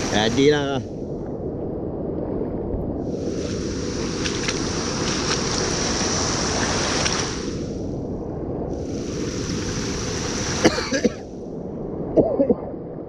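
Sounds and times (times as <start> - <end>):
rushing river water: 0.0 - 0.8, 3.1 - 7.7, 8.8 - 11.3
wind buffeting microphone: 0.0 - 13.0.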